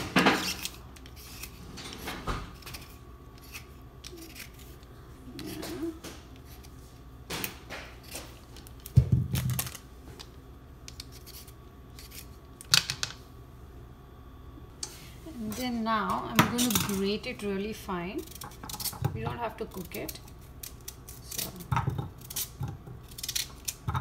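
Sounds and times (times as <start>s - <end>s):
peeler scraping beetroot skin: 0.2s - 1.7s, 2.5s - 6.8s, 10.9s - 12.4s, 18.0s - 24.0s.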